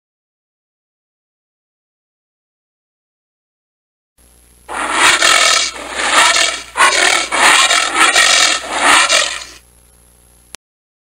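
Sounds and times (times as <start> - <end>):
rough rasping animal noise: 4.7 - 9.6.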